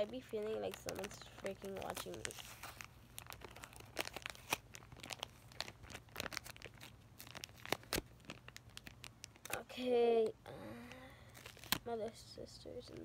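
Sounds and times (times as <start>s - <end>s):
wipes packet crinkling: 0.0s - 13.0s.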